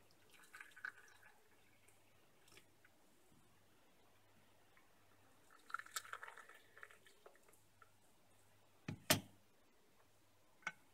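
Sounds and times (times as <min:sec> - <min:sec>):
coffee pouring into cup: 0:00.0 - 0:02.9, 0:05.4 - 0:07.9.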